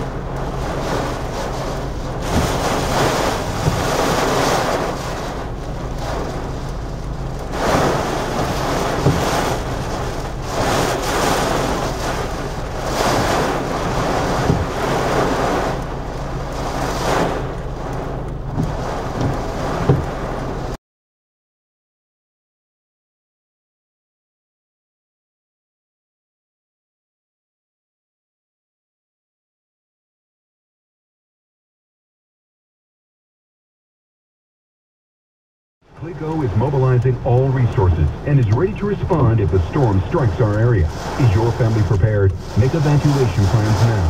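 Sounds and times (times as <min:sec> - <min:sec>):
car low hum: 0:00.0 - 0:20.8, 0:35.9 - 0:44.0
wind and rain buffeting car: 0:00.0 - 0:20.8, 0:35.8 - 0:44.0.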